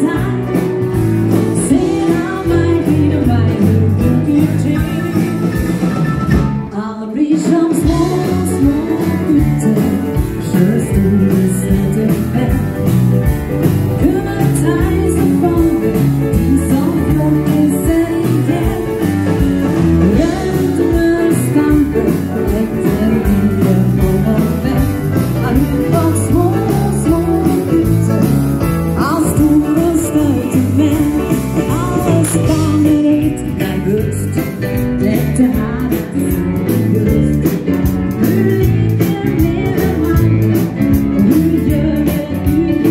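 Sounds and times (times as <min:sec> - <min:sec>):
woman singing: 0:00.0 - 0:05.9, 0:06.5 - 0:42.9
live dance band music: 0:00.0 - 0:42.9.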